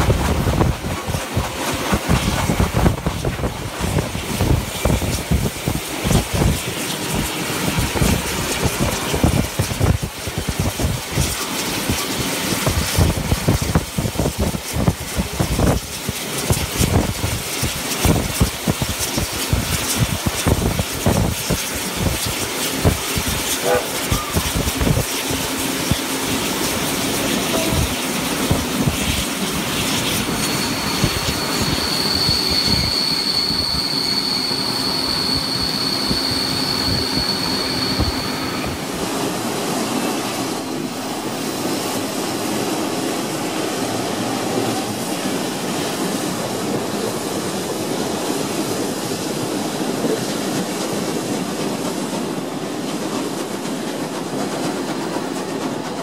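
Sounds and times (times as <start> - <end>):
train wheels clattering over track: 0.0 - 56.0
high-pitched wheel squeal: 30.2 - 38.8.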